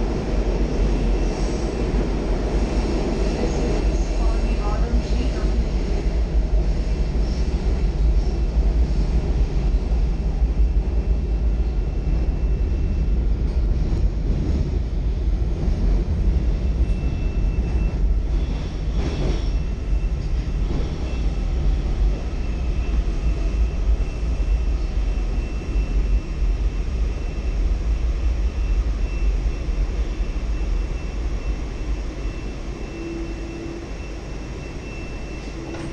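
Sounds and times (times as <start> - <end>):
train wheels rumbling on rail: 0.0 - 35.9
train clunk: 35.0 - 35.9.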